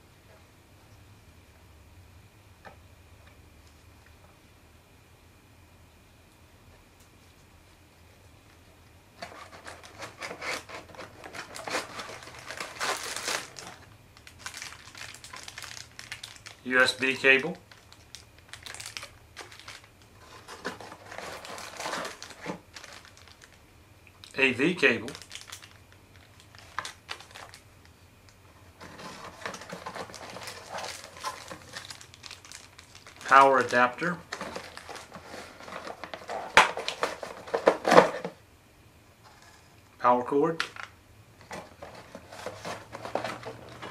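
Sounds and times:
cardboard rustling: 9.2 - 16.5, 18.6 - 23.6, 28.6 - 38.4, 41.4 - 43.9
plastic bag crinkling: 9.3 - 23.6, 25.0 - 27.7, 28.8 - 38.3, 40.6 - 43.9
cardboard flaps rustling: 41.4 - 43.9.

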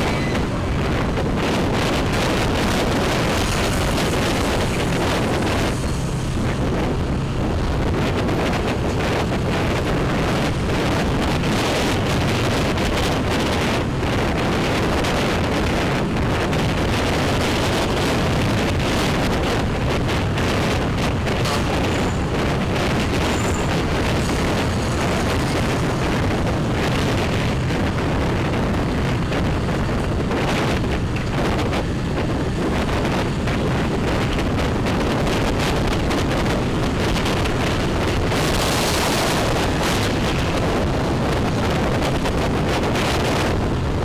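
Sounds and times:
wind rushing over microphone: 0.0 - 44.0.

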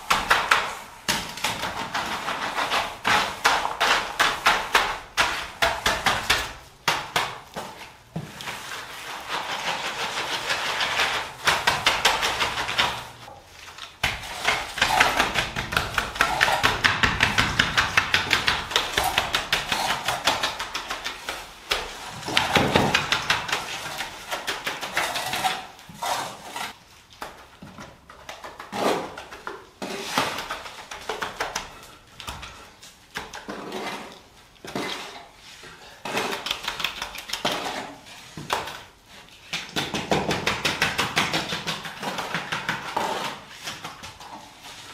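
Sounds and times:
tools tapping on wet concrete: 14.0 - 25.7.

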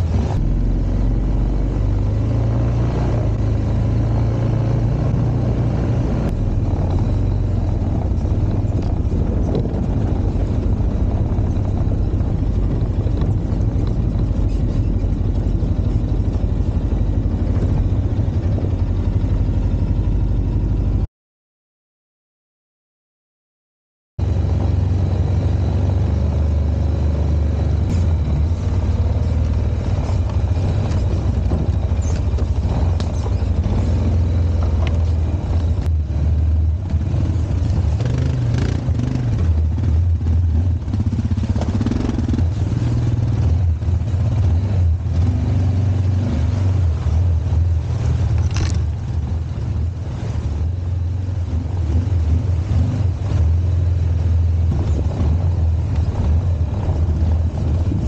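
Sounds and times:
atv engine rumbling: 0.0 - 21.1, 24.2 - 58.0.

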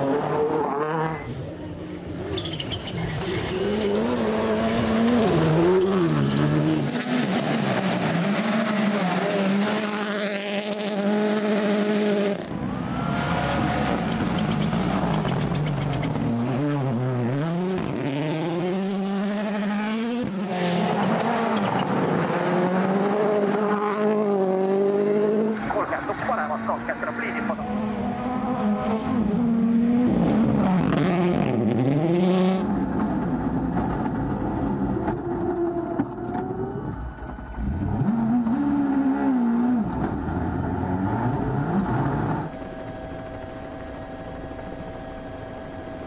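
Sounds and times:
rally car engines passing: 0.0 - 46.0.

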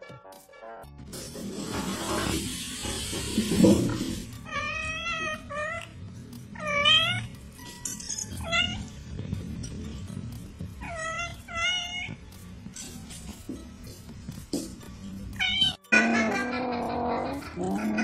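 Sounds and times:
background music: 0.0 - 18.0
cat mewing: 4.4 - 6.0.

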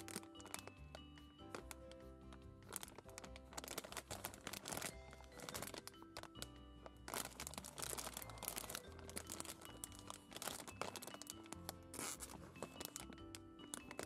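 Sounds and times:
background music of held notes: 0.0 - 14.0
plastic snack bag crinkling: 0.0 - 14.0.

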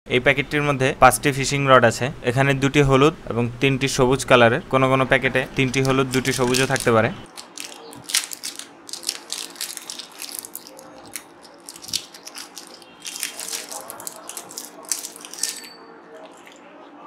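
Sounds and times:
plastic bag crinkling: 5.6 - 15.7.

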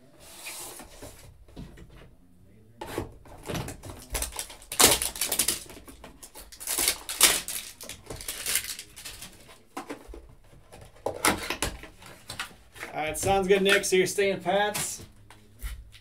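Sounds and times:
plastic wrapping crackling: 3.9 - 9.5.

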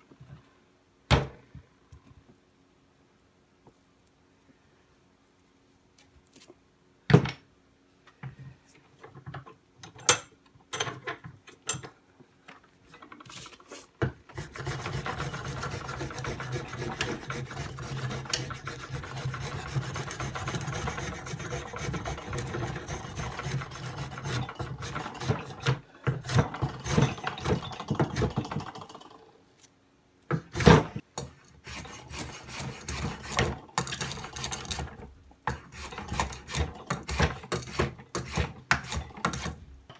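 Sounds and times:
blade scraping wood: 13.4 - 27.6, 31.6 - 34.9.

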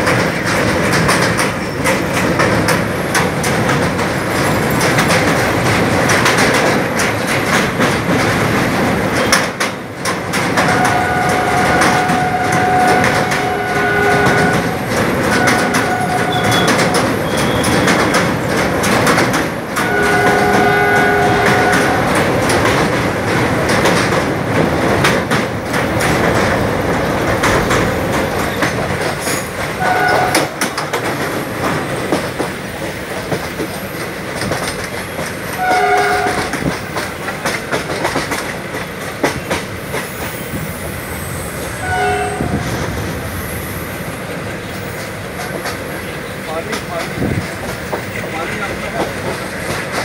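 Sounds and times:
train wheels clattering on rails: 0.0 - 50.0
train horn blasts: 10.6 - 17.8, 19.8 - 22.3, 29.8 - 30.7, 35.6 - 36.7, 41.8 - 42.7.

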